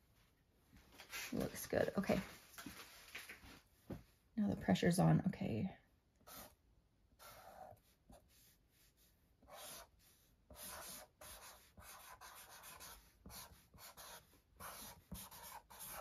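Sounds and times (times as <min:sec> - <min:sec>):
marker scratching on card: 0:06.2 - 0:06.6, 0:07.2 - 0:16.0.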